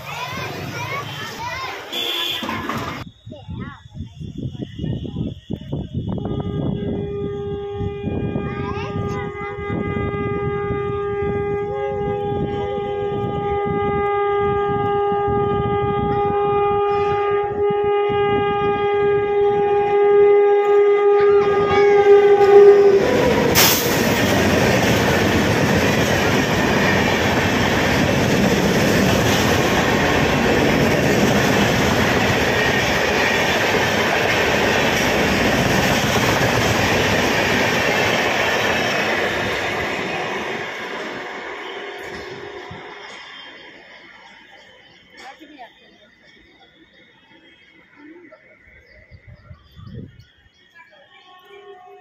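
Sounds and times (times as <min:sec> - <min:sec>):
train wheels on rails rushing: 0:00.0 - 0:51.0
train horn blast: 0:01.9 - 0:03.0, 0:06.1 - 0:43.6, 0:51.3 - 0:52.0.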